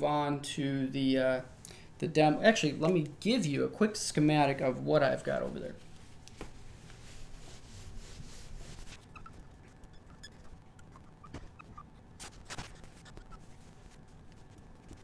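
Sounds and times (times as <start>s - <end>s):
marker pen on whiteboard: 5.4s - 15.0s.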